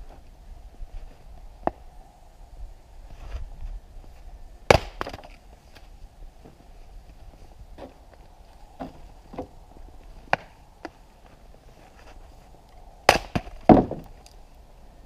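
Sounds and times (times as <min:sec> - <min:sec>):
axe striking log with crack: 0:04.7 - 0:05.4, 0:13.0 - 0:14.2.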